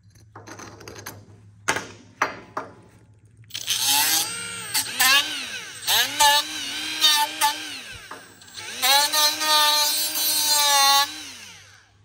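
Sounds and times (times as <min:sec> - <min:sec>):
die grinder sanding metal: 0:03.6 - 0:11.3.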